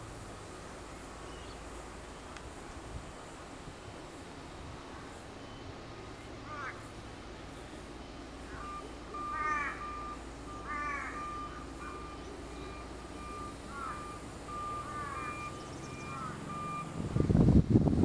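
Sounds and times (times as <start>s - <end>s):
crows cawing: 6.4s - 6.9s, 8.5s - 12.2s, 13.2s - 16.5s
high beep: 11.2s - 17.3s
wind buffeting microphone: 15.8s - 18.0s.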